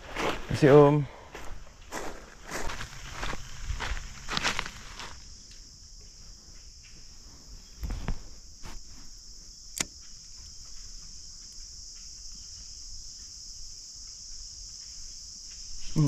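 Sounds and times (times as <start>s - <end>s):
insect chorus: 0.0s - 16.0s
sharp click: 9.7s - 10.0s.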